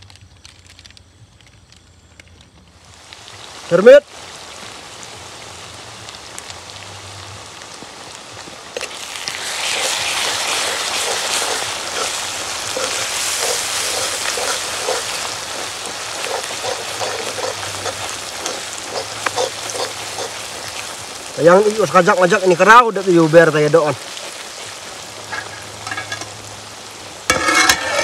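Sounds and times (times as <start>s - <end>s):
onions sizzling in hot oil: 0.0s - 28.0s
metal spoon scraping pan: 9.6s - 20.8s, 25.3s - 26.3s, 27.3s - 28.0s.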